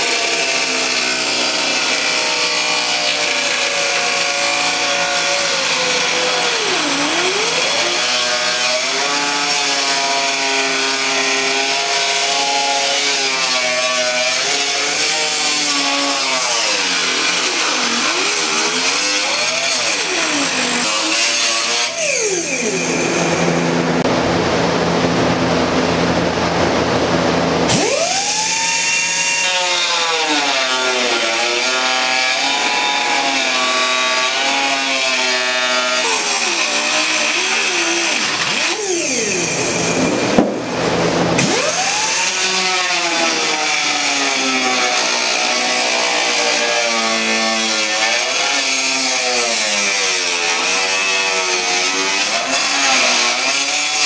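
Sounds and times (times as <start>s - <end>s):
air-powered cut-off wheel cutting: 0.0s - 9.4s, 15.6s - 24.0s, 27.7s - 30.2s, 35.7s - 46.4s.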